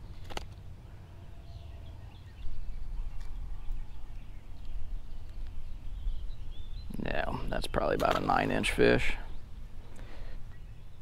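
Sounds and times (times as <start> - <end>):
wind rumble on microphone: 1.3 - 7.0
faint bird chirps: 9.1 - 11.0.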